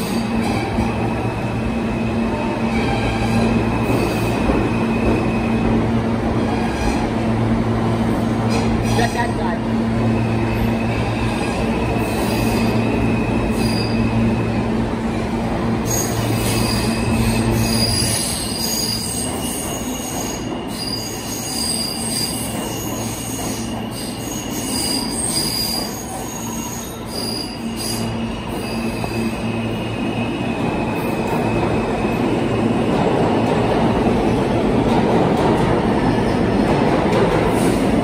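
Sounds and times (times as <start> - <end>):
subway train rumbling on track: 0.0 - 38.0
high wheel squeal: 10.2 - 14.4, 15.8 - 31.6.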